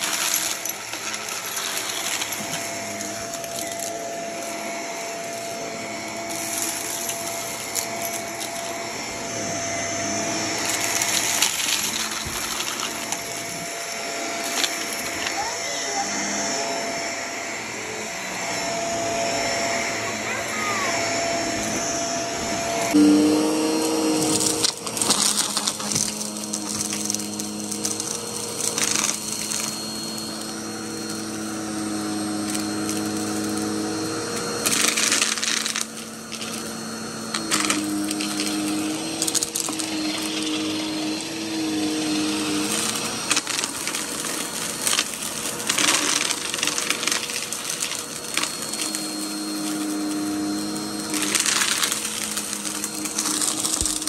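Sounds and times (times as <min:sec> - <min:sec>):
vacuum cleaner motor whine: 0:00.0 - 0:54.0
brushroll crunching debris: 0:41.8 - 0:54.0.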